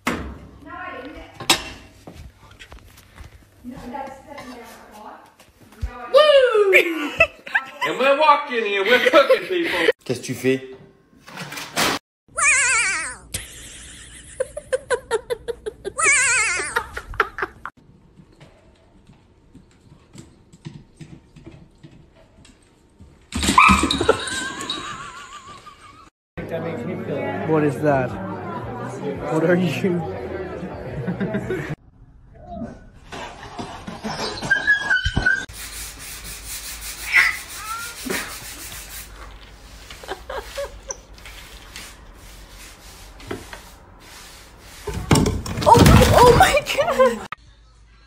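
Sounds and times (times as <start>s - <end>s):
dog whining: 34.1s - 35.5s.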